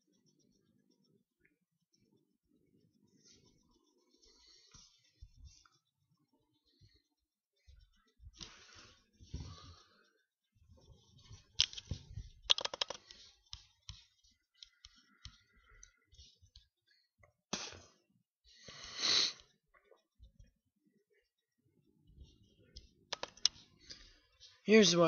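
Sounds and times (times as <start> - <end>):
computer mouse clicks: 11.6 - 16.7, 22.7 - 24.0
short breathy hiss: 18.7 - 19.4.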